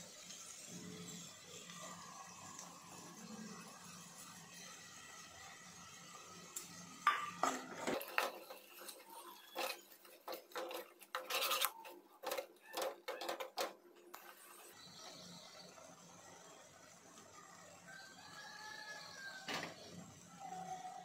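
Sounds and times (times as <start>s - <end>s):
ladle scraping a pot: 7.1s - 14.8s.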